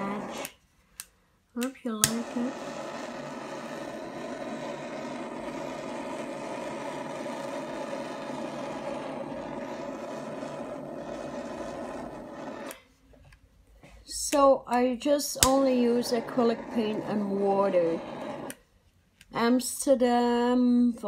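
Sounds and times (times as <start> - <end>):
gas torch hissing: 0.0 - 0.6, 1.8 - 12.8, 15.2 - 18.6.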